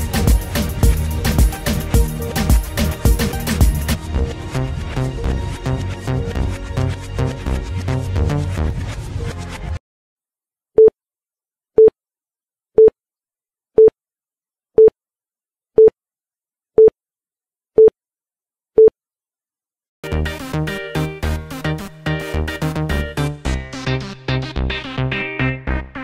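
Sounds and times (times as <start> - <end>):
electronic workout music: 0.0 - 9.5, 20.0 - 26.0.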